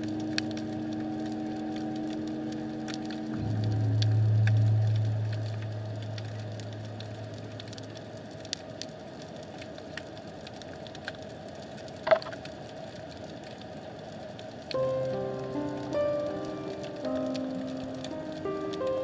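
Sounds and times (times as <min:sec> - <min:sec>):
low drone: 0:00.0 - 0:08.6
sharp clicks and crackles: 0:00.0 - 0:19.0
underwater hum: 0:00.0 - 0:19.0.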